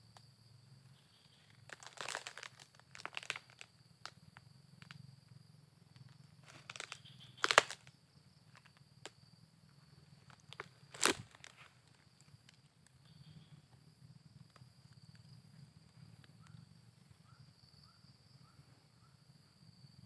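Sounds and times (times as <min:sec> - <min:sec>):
footsteps crunching on dry leaves: 0:01.7 - 0:03.6, 0:06.5 - 0:07.8, 0:10.3 - 0:11.7.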